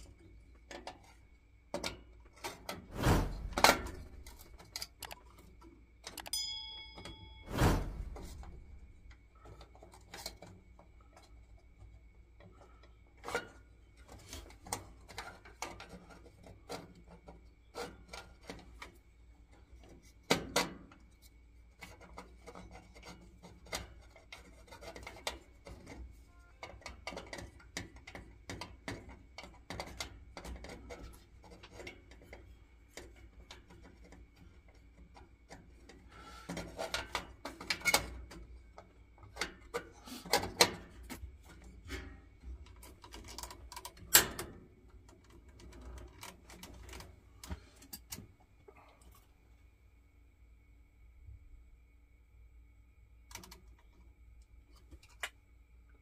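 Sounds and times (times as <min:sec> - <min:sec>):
faint high whine: 0:02.9 - 0:09.8.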